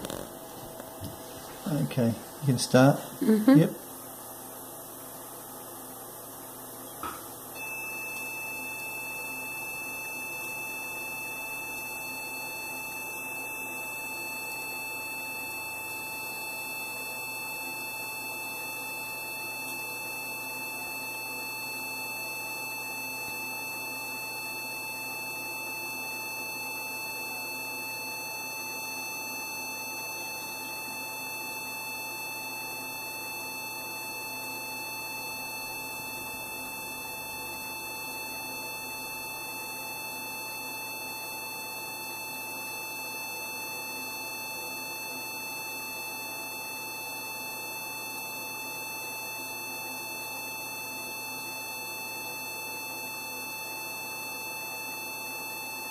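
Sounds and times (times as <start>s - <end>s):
high continuous laser beep: 7.6s - 55.9s.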